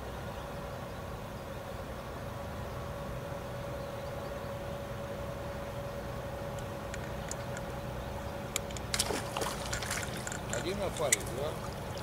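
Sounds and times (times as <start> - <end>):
faint steady hum: 0.0 - 12.0
low background rumble: 0.0 - 12.0.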